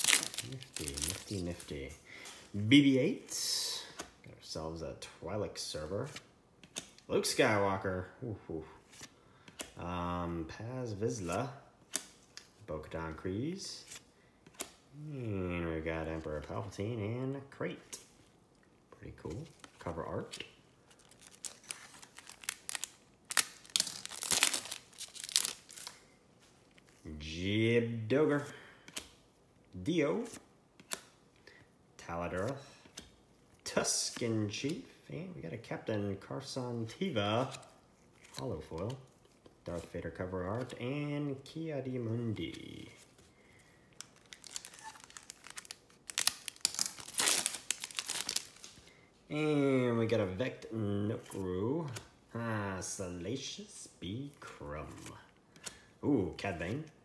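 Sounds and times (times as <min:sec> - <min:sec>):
foil wrapper crinkling and tearing: 0:00.0 - 0:01.7, 0:20.9 - 0:26.0, 0:44.0 - 0:48.8
cards being handled: 0:00.0 - 0:02.6, 0:19.2 - 0:27.1, 0:44.0 - 0:48.9.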